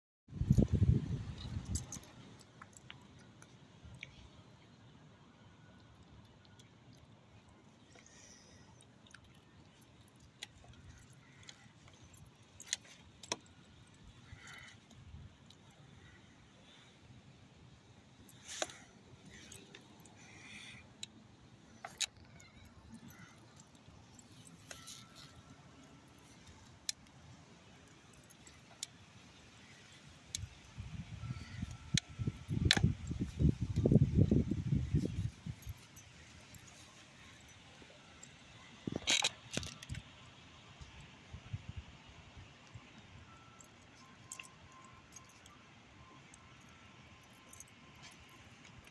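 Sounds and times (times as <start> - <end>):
wind rumble on microphone: 0.3 - 2.2, 30.4 - 35.9
dog collar tags jingling: 1.3 - 2.9, 21.6 - 27.0, 29.6 - 40.1, 42.8 - 48.9.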